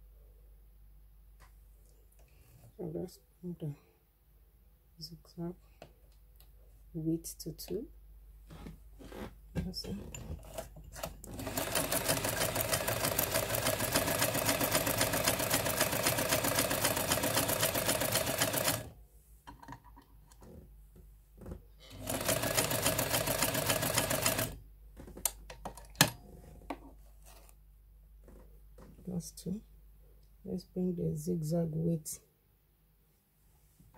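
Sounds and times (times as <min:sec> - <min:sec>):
sewing machine needle clatter: 0:10.5 - 0:18.9.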